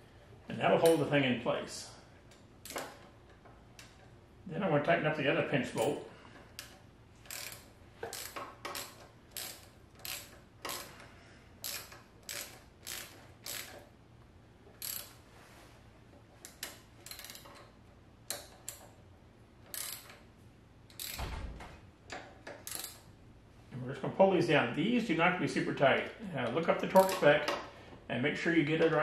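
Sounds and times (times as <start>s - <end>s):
hand ratchet clicking: 2.3s - 4.2s, 5.8s - 13.9s, 14.8s - 15.2s, 16.4s - 17.7s, 18.3s - 19.0s, 19.6s - 20.2s, 20.9s - 21.3s, 22.1s - 23.1s, 26.9s - 27.6s.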